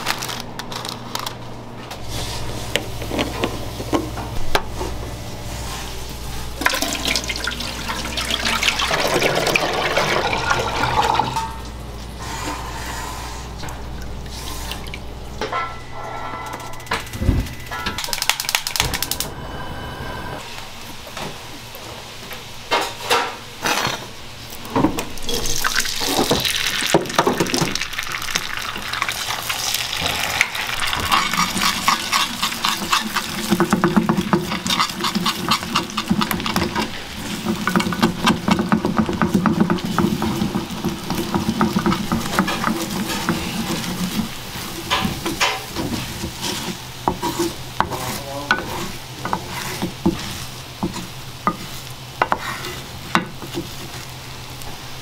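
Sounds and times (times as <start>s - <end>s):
eggs sizzling in a pan: 25.2s - 55.0s
wooden spatula scraping pan: 30.8s - 54.2s.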